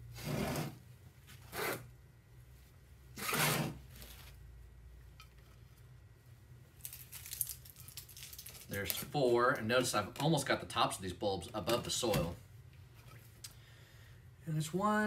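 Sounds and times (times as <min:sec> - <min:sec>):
small crackling rustles: 0:06.7 - 0:10.3.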